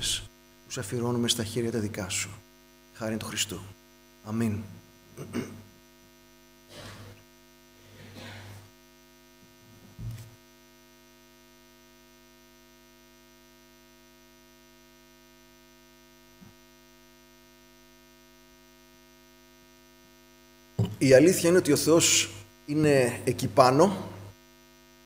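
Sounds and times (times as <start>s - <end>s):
electrical mains hum: 0.0s - 25.0s
low knock: 20.8s - 21.0s.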